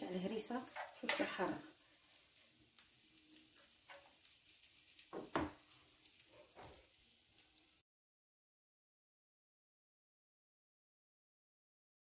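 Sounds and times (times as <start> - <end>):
sauce sizzling in a pan: 0.0 - 7.8
spoon knocking and scraping pan: 0.6 - 1.5, 3.5 - 4.4, 5.0 - 6.9.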